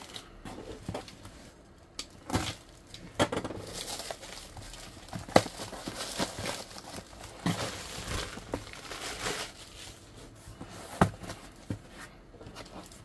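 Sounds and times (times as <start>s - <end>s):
plastic bag crinkling: 2.3s - 10.1s.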